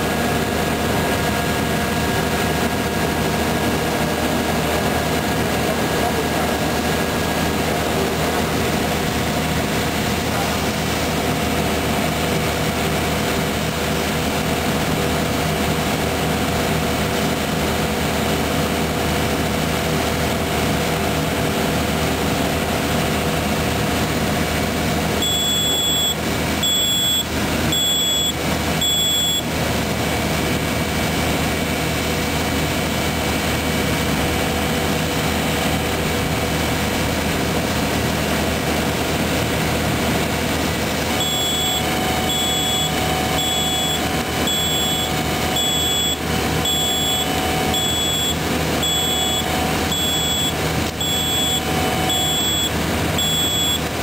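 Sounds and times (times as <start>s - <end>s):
diesel engine running: 0.0s - 54.0s
electronic warning beeps: 25.2s - 29.5s, 41.1s - 53.9s.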